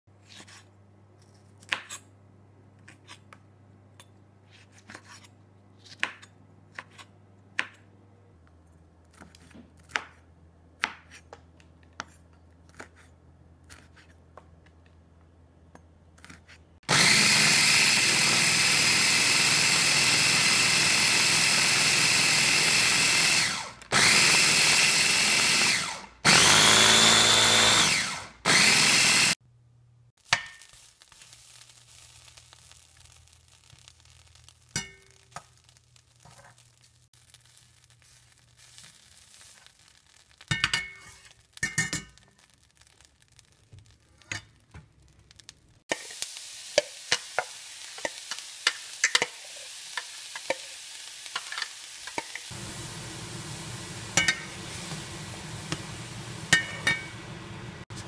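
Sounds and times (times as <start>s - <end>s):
electric food chopper grinding: 16.9s - 29.4s, 52.4s - 57.8s.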